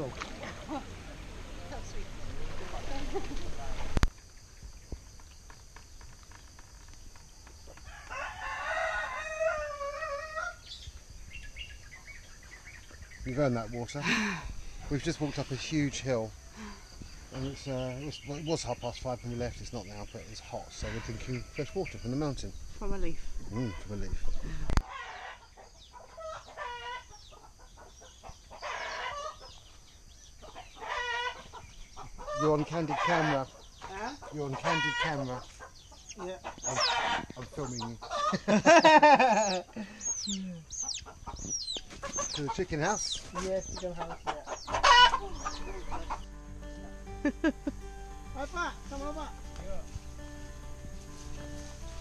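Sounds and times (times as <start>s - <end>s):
rooster crowing: 7.8s - 10.6s, 20.5s - 21.9s, 24.8s - 25.5s
harsh raspy chicken call: 7.9s - 10.6s, 24.8s - 27.2s, 28.5s - 29.5s, 30.5s - 31.5s, 32.2s - 35.3s, 36.2s - 37.3s, 38.0s - 41.1s, 44.0s - 46.2s
chickens clucking: 23.0s - 46.3s.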